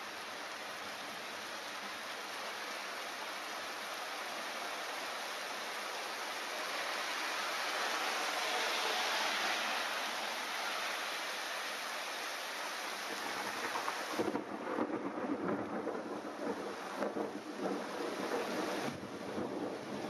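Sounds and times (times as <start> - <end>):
heavy rain hissing: 0.0 - 20.0
thunder rumbling: 13.1 - 20.0.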